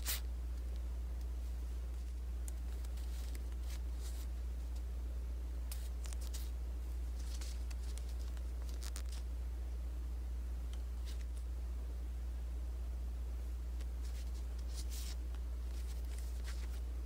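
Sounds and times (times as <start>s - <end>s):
low electrical hum: 0.0s - 17.0s
paper cards shuffling: 1.9s - 4.8s, 5.7s - 6.5s, 7.1s - 9.2s, 13.8s - 16.9s.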